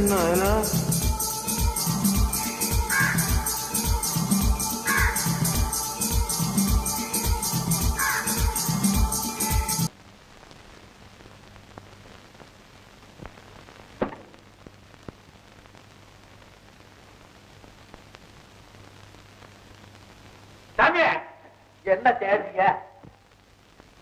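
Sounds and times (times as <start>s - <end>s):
song playing: 0.0s - 9.9s
faint hum and hiss: 5.3s - 24.0s.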